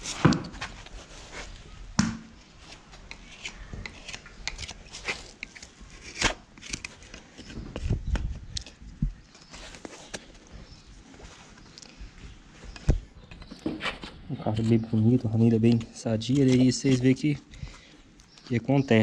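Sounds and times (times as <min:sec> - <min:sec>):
hoof knife scraping: 0:02.7 - 0:07.5, 0:14.6 - 0:17.2.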